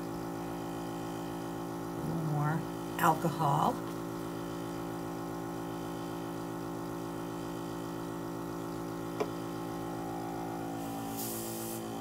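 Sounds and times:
air compressor humming: 0.0s - 12.0s.

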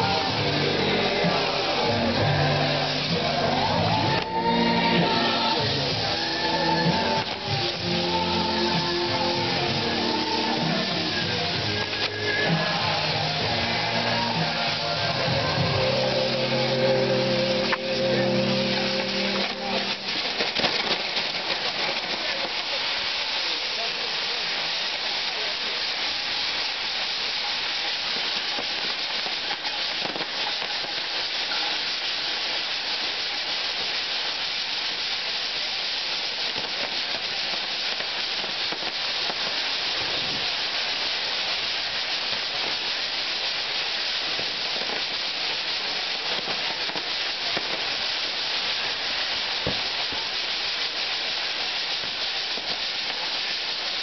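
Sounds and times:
firework fountains hissing: 0.0s - 54.0s
faint firework cracks: 5.1s - 16.8s, 17.6s - 54.0s.

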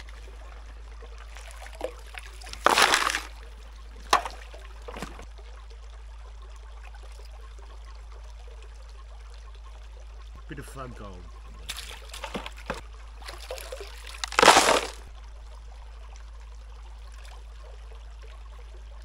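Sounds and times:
water sloshing in a pan: 0.0s - 10.2s, 11.4s - 19.0s
running water: 0.0s - 19.0s
loud water splash: 1.6s - 3.4s, 13.3s - 15.1s.

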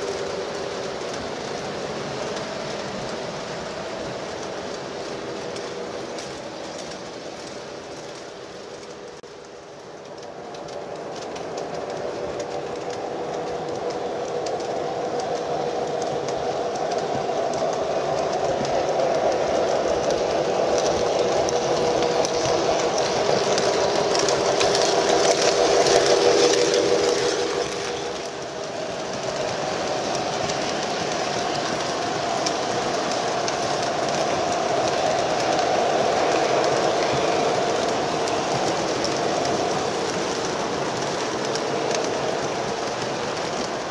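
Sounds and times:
model trains humming and rumbling: 0.0s - 43.9s.

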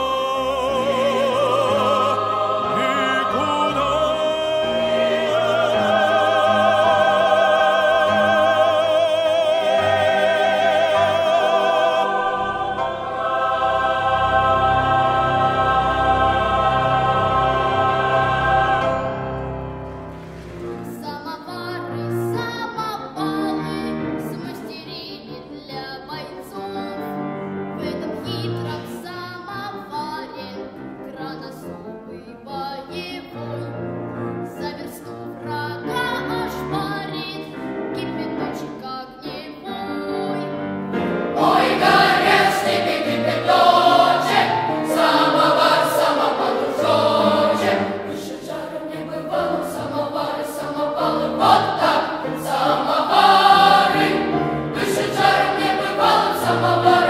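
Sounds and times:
boys' choir singing: 0.0s - 20.0s, 40.9s - 57.0s
choir singing: 0.0s - 27.2s, 34.7s - 57.0s.

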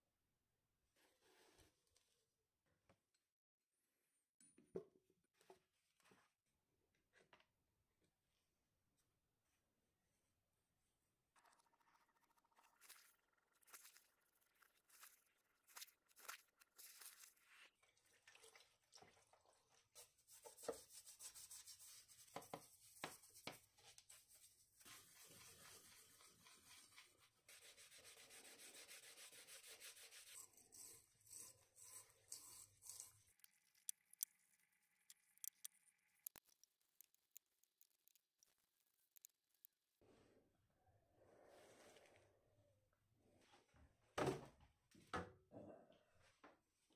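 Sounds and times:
gloved hands rubbing and scrubbing: 12.8s - 17.8s, 20.0s - 40.0s
small metal clicks and taps: 32.9s - 39.8s.

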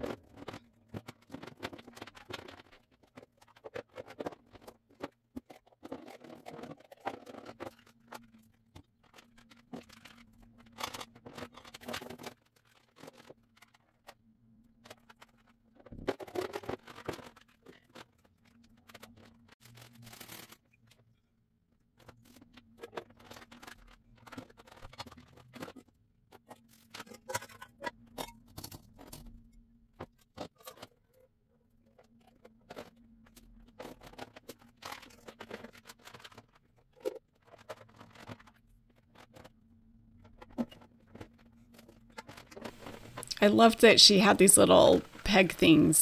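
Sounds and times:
plastic lids clicking and scraping: 0.0s - 8.4s.

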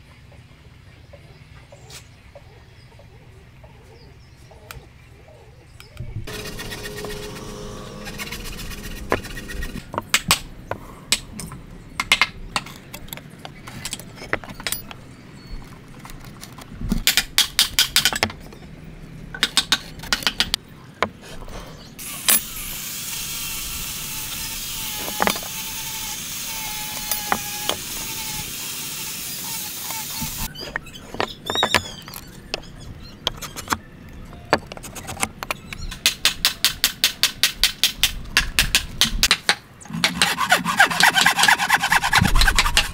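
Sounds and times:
steady hiss: 22.0s - 30.5s.

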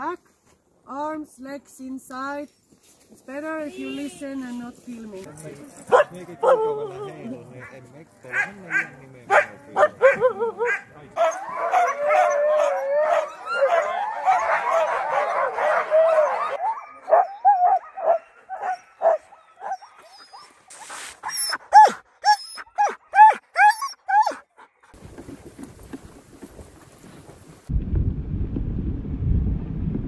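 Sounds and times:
huskies barking and howling: 5.9s - 20.6s, 21.2s - 24.6s
dog sled running over snow: 25.0s - 27.7s.

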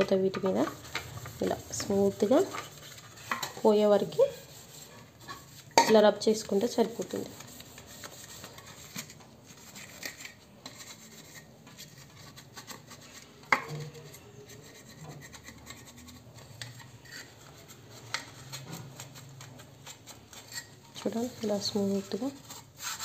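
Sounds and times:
scrub pad scrubbing plastic: 0.1s - 16.6s, 17.2s - 23.0s.

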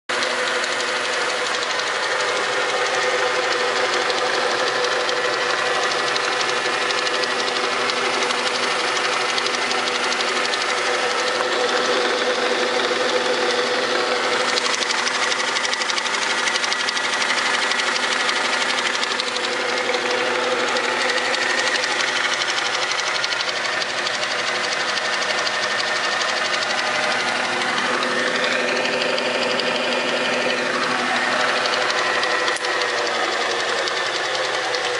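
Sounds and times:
milling machine humming: 18.1s - 34.9s.

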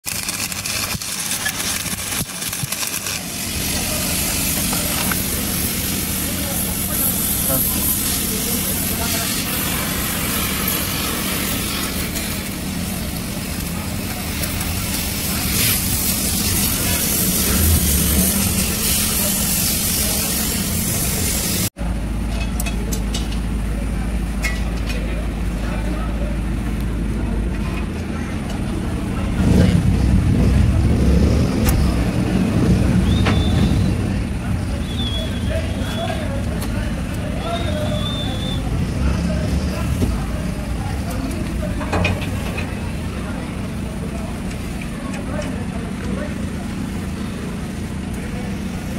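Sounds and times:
welding machine humming: 0.0s - 21.7s
broad hiss: 0.1s - 21.7s
low engine-like rumble: 0.7s - 48.9s
brief high whistle: 33.0s - 34.0s, 34.8s - 36.2s, 37.4s - 38.7s.

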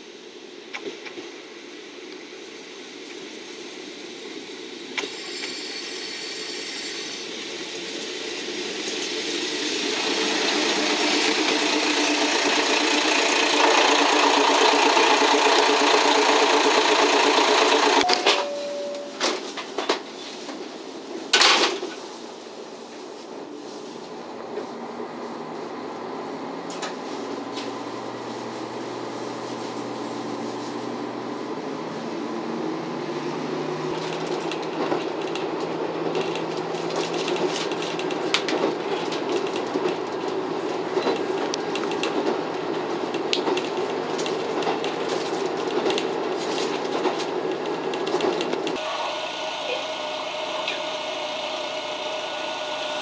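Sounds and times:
diesel railcar engine: 0.0s - 53.0s
wheels clicking over rail joints: 8.8s - 18.6s, 33.2s - 48.8s.

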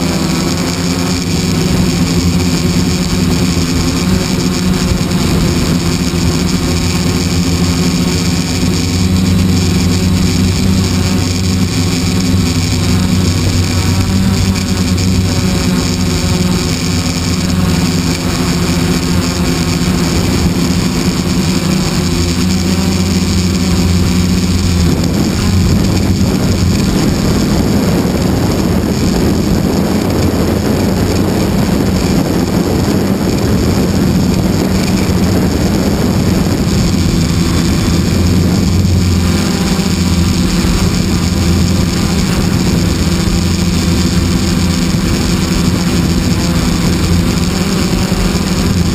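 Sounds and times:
model airplane engine running: 0.0s - 48.9s
rushing air: 0.0s - 48.9s.

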